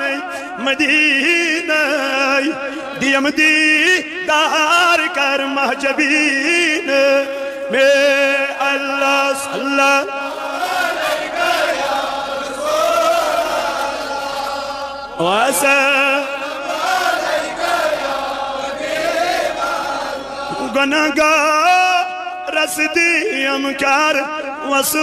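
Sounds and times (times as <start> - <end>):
man chanting devotional song: 0.0 - 11.0, 14.2 - 17.7, 20.2 - 25.0.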